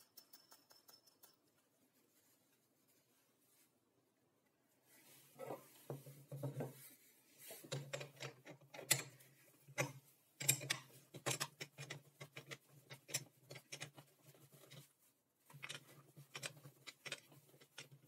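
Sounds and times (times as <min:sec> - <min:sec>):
wrench clicking on metal nuts: 0:09.8 - 0:14.0.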